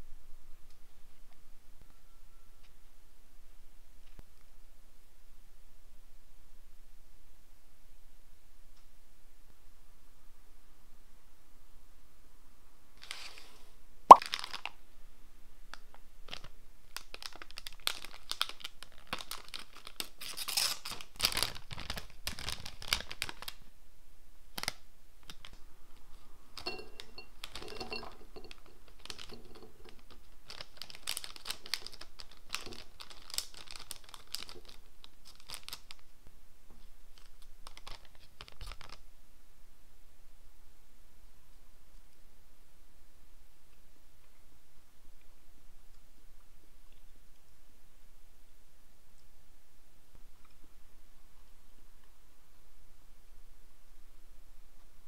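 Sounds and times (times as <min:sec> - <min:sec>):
plastic snack bag crinkling: 0:14.1 - 0:14.8, 0:16.3 - 0:23.7, 0:26.6 - 0:36.1, 0:37.1 - 0:39.0.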